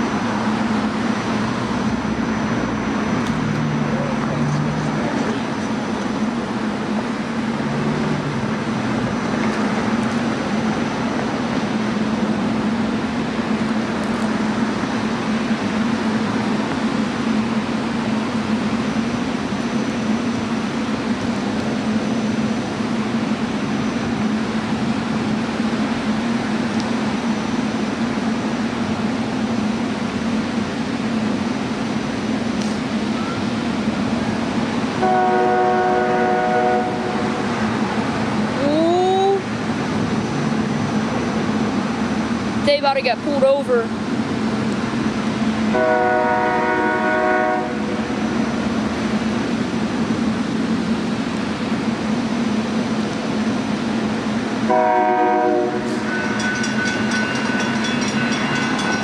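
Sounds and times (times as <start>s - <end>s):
engine-like drone: 0.0s - 59.0s
train chord horn: 35.0s - 37.5s, 45.7s - 48.2s, 54.7s - 56.6s.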